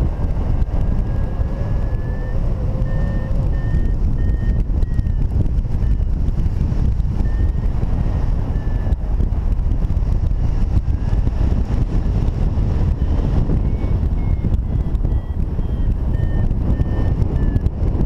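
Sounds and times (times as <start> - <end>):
wind buffeting microphone: 0.0 - 18.0
faint short electronic beeps: 1.0 - 6.1, 7.2 - 9.0, 13.0 - 17.6.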